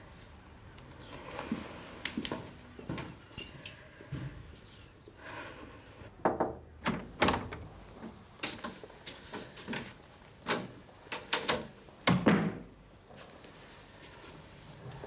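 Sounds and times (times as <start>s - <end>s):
ringing clink: 3.4s - 3.8s.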